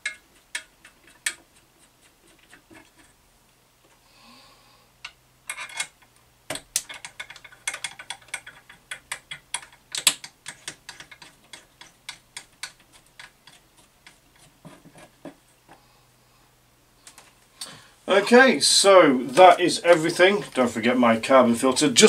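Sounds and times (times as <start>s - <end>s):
plastic and metal clicks and knocks: 5.0s - 15.4s.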